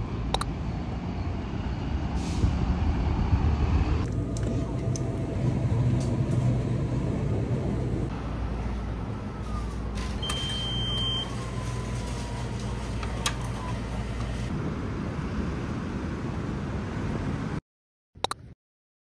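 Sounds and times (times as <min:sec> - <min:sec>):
vehicle rumble in motion: 0:00.0 - 0:17.6
short high beep: 0:10.2 - 0:11.3.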